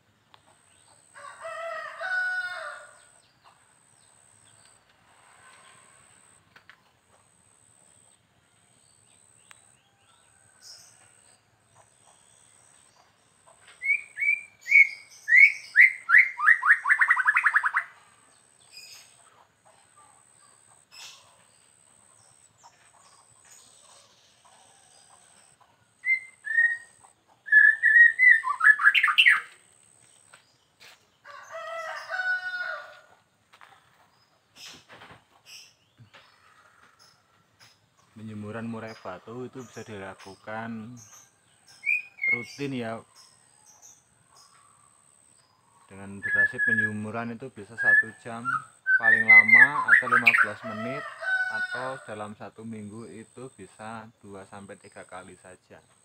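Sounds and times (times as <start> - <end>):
rooster crowing: 1.2 - 3.1, 31.2 - 33.2, 49.2 - 52.2
bird singing whistled notes and trills: 8.0 - 19.2, 26.0 - 29.6, 35.4 - 51.0.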